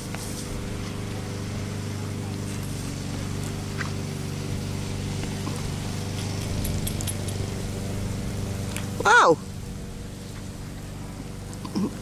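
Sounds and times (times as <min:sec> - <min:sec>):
low mechanical hum: 0:00.0 - 0:12.0
faint light clinks: 0:05.4 - 0:07.6.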